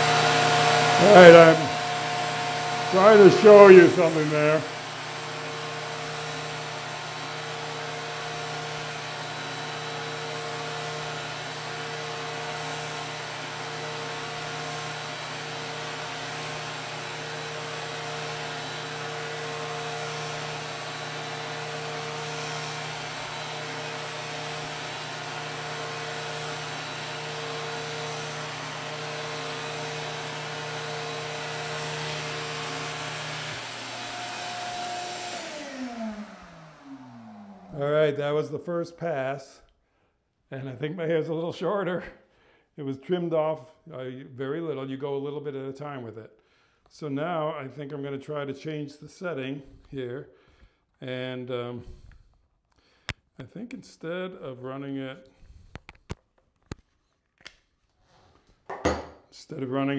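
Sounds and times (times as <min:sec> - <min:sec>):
vacuum motor drawing air: 0:00.0 - 0:38.2.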